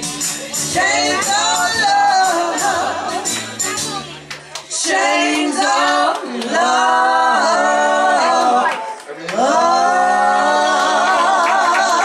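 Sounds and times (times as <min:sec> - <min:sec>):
backing track with bass and percussion: 0:00.0 - 0:04.8
women singing doo-wop: 0:00.6 - 0:03.8, 0:04.7 - 0:12.0.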